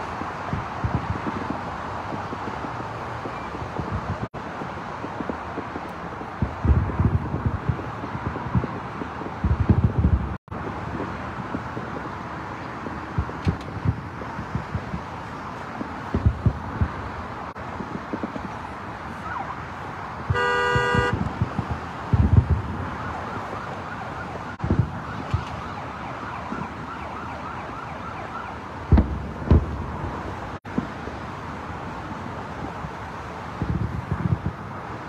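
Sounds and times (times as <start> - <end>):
distant fireworks booming: 0.0 - 27.8, 28.6 - 35.0
traffic noise: 0.0 - 35.0
car horn honk: 20.3 - 21.2.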